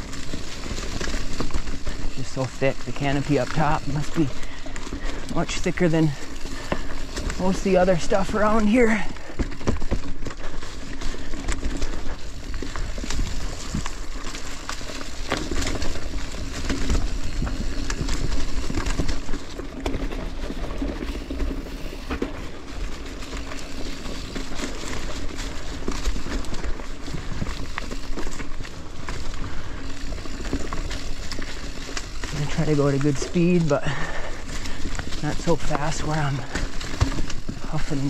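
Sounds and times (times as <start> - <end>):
bike rattling over rough ground: 0.0 - 38.0
bike tyres crunching through leaves: 0.0 - 38.0.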